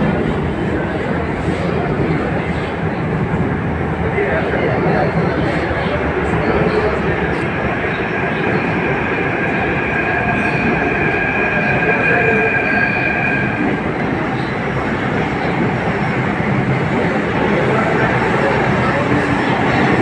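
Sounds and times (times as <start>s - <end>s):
train rumble: 0.0s - 20.0s
high even squeal: 7.8s - 13.6s.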